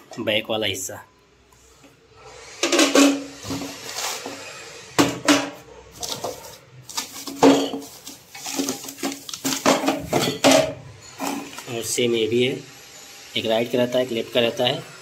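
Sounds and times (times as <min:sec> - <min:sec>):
metal parts clattering and scraping: 0:06.0 - 0:11.8.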